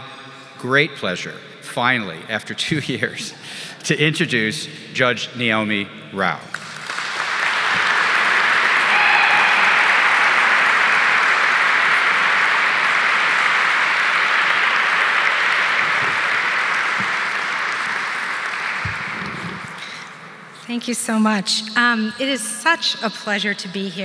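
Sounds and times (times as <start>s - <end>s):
audience applauding: 6.5s - 20.2s.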